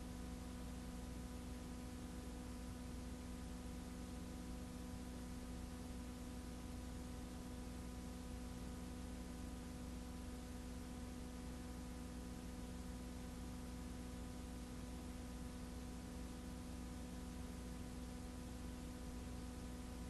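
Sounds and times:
electrical hum with tones: 0.0 - 20.0.

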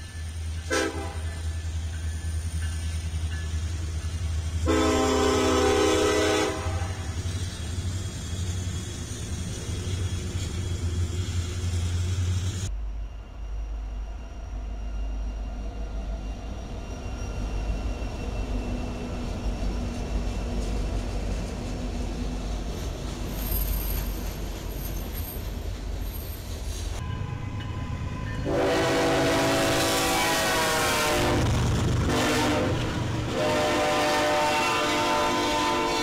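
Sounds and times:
diesel locomotives rumbling past: 0.0 - 36.0
locomotive air horn chord: 0.7 - 1.4, 4.6 - 7.2, 27.0 - 36.0.

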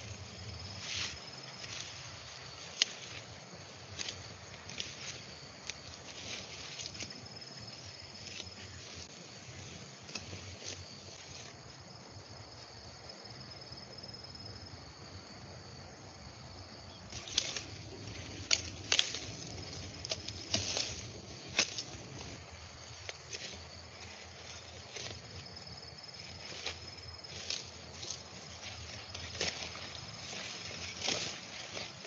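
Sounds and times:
leafy stalks rustling: 0.0 - 12.8, 16.6 - 32.0
insect drone: 0.0 - 32.0
stalks snapping and cracking: 17.1 - 22.0.

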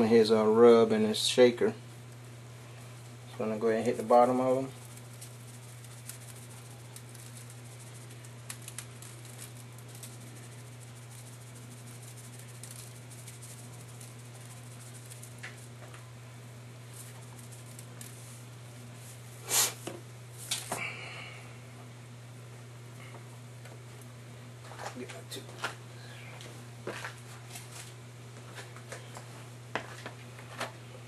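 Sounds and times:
steady low hum: 0.0 - 31.0
spice shaker rattling: 2.9 - 16.0, 16.7 - 19.7.

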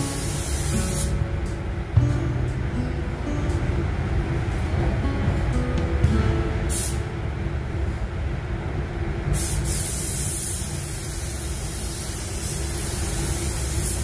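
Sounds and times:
paint spray gun hissing: 0.0 - 1.2, 9.4 - 14.0
steady low rumble: 0.0 - 14.0.

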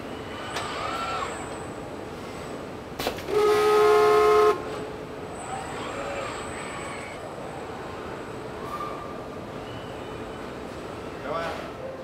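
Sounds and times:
loud horn-like signal tone: 3.3 - 4.6.

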